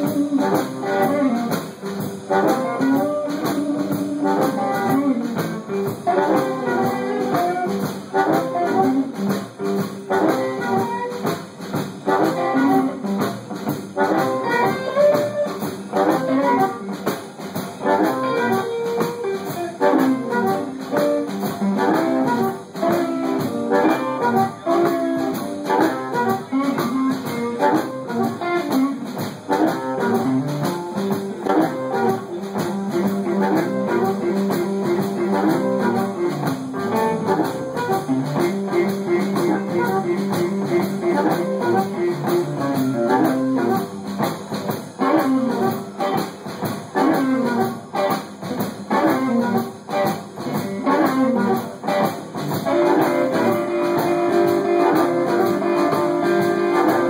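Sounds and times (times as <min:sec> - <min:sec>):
blues band playing: 0:00.0 - 0:57.0.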